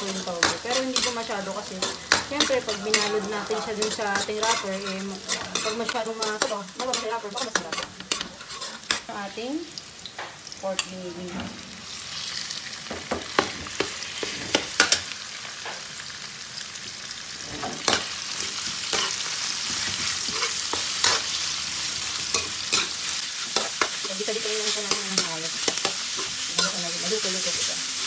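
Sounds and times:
metal spatula scraping wok: 0.0s - 9.2s, 10.8s - 11.9s
meat sizzling in oil: 0.0s - 28.0s.

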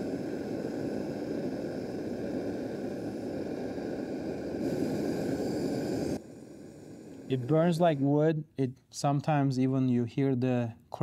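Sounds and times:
gas torch flame hissing: 0.0s - 8.6s.

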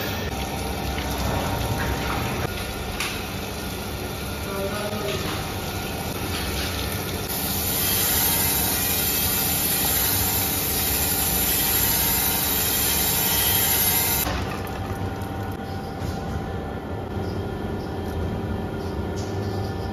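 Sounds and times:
machine hum: 0.0s - 19.9s
grinding wheel hissing: 3.4s - 14.3s.

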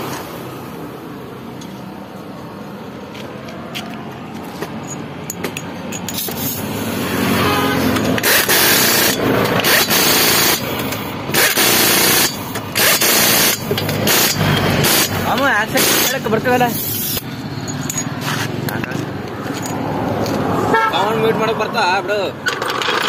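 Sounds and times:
pneumatic impact wrench hammering: 4.6s - 6.8s, 7.8s - 18.6s, 22.4s - 23.0s.

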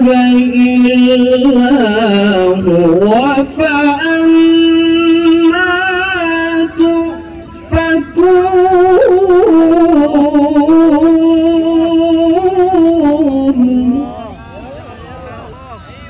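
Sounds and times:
man reciting melodically: 0.0s - 14.5s.

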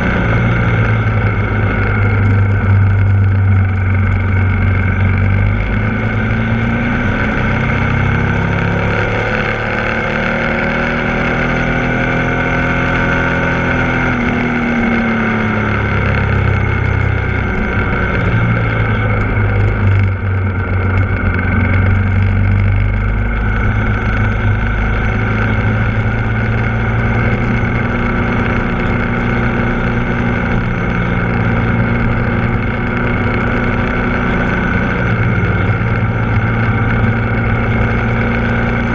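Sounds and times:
motorcycle engine revving: 0.0s - 38.9s.

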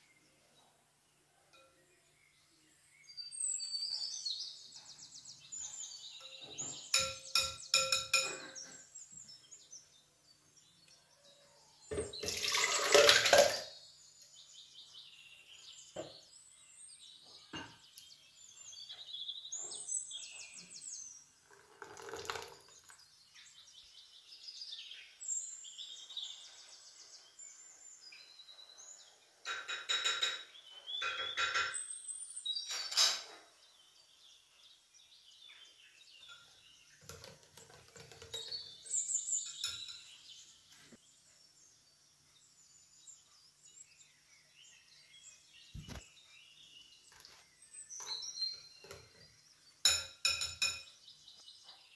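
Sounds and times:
birds chirping: 0.0s - 51.9s
utensils clinking in glass bowl: 6.2s - 8.8s, 11.9s - 13.7s, 37.1s - 40.2s, 49.9s - 51.0s.

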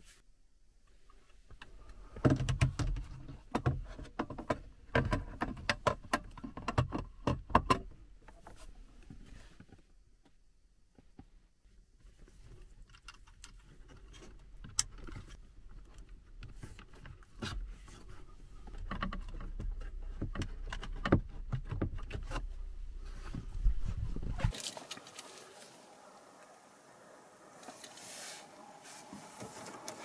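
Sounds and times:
hands rustling wiring harness: 12.1s - 26.4s.

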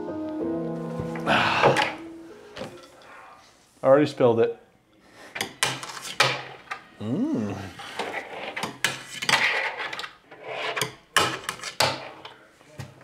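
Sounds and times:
fingerboard rolling and grinding: 7.9s - 10.8s.

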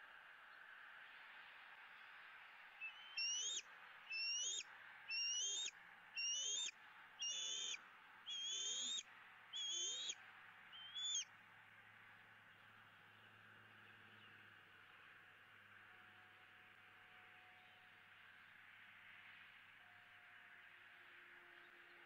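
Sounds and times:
eagle squealing calls: 2.9s - 10.2s, 10.8s - 11.2s.

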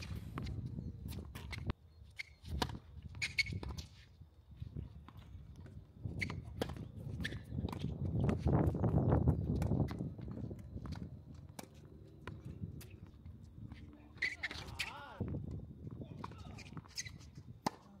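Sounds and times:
shoe squeaks: 0.0s - 4.1s, 6.1s - 8.2s, 12.2s - 15.2s, 16.3s - 17.8s
tennis ball hits and bounces: 16.2s - 17.9s.

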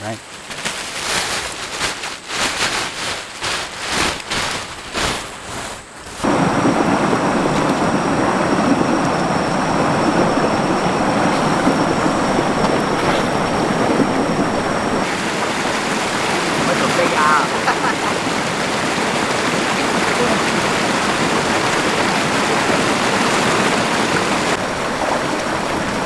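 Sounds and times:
water splashing: 3.4s - 26.0s
river water rushing: 6.0s - 26.0s.

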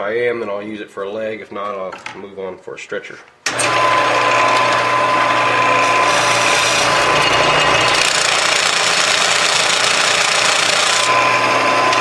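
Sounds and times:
lathe humming: 3.5s - 12.0s
tool scraping spinning wood: 3.6s - 12.0s.

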